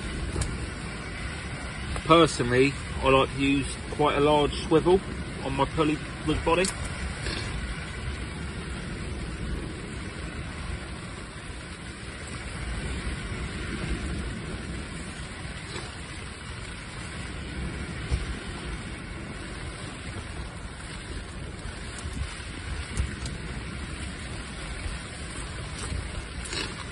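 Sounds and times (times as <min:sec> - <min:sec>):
low wind rumble: 0:00.0 - 0:26.9
rain on fabric canopy: 0:00.0 - 0:26.9.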